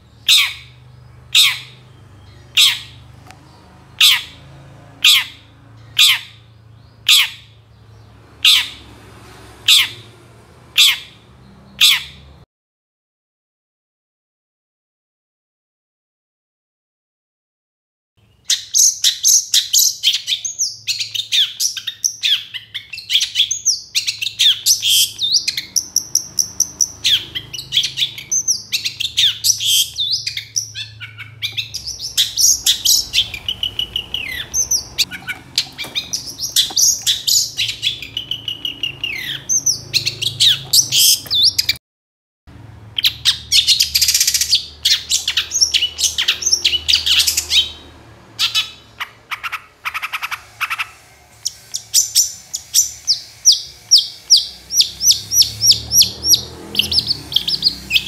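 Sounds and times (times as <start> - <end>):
shrike singing chirps and trills: 0.0 - 8.9, 18.2 - 41.8, 42.9 - 58.0.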